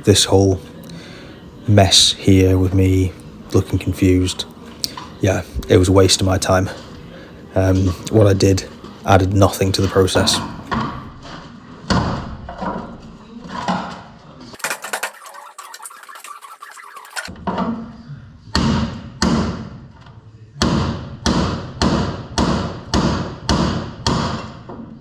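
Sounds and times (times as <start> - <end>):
thin crackling: 14.6 - 17.3.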